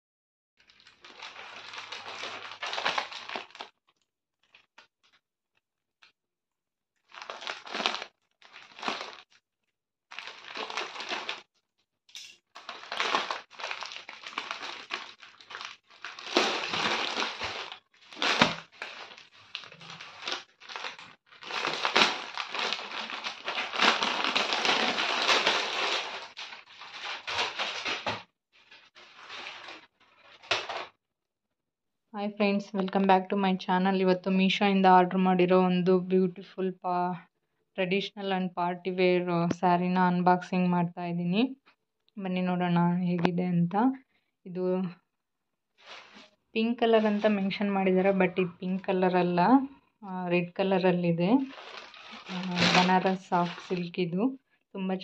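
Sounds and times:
plastic bag crinkling: 0.6s - 5.2s, 7.0s - 9.4s, 10.1s - 11.5s, 12.4s - 31.0s, 45.8s - 46.3s, 51.3s - 54.0s.

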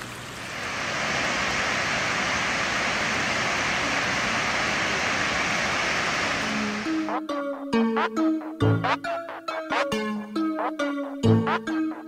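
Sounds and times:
waterfall rushing: 0.6s - 7.1s.

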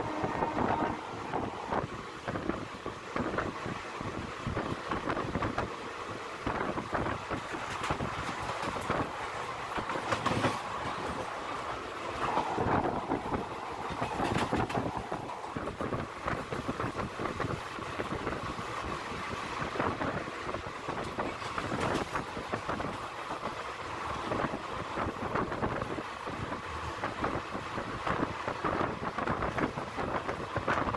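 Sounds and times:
train running and wind noise: 0.0s - 30.9s
wheels clattering on rails: 6.4s - 30.9s.

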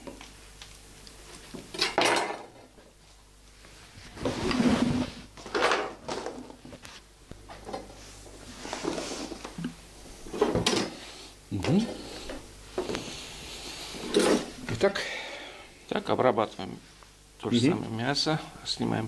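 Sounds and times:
scraping on worktop: 4.1s - 7.0s, 7.6s - 9.6s, 13.9s - 14.6s.

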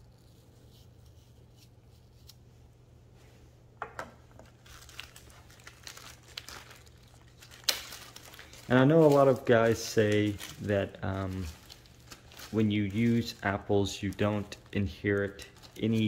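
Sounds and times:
low steady hum: 0.0s - 16.0s
plastic bag crinkling: 4.3s - 16.0s.

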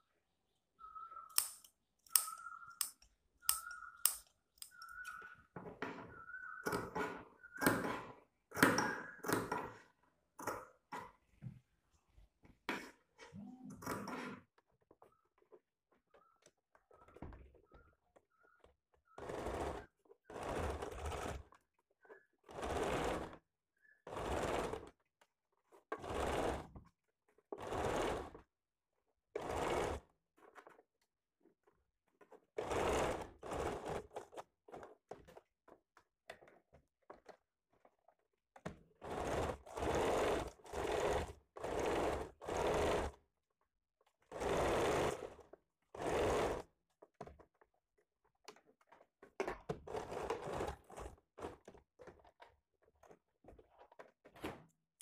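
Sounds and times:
sewing machine stitching: 6.6s - 11.1s, 19.0s - 25.1s, 25.7s - 28.5s, 29.3s - 30.8s, 32.2s - 35.4s, 38.6s - 43.2s, 44.1s - 46.8s, 49.7s - 54.4s.

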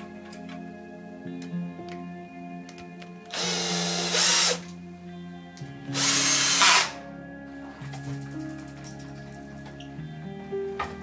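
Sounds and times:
background music with held notes: 0.0s - 11.0s
power screwdriver whirring: 3.3s - 4.7s, 5.9s - 7.0s.

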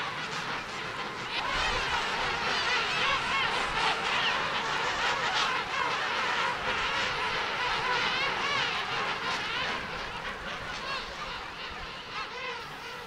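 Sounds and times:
penguins calling: 0.0s - 13.0s.

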